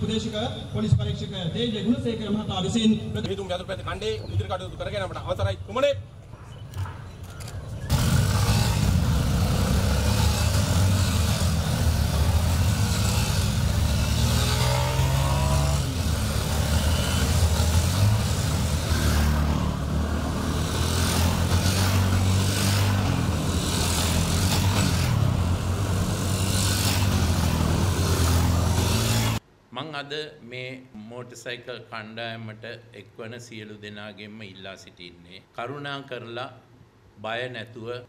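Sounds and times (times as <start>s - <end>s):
dirt bikes riding past: 7.9s - 29.4s
motorcycle engine revving: 7.9s - 29.4s.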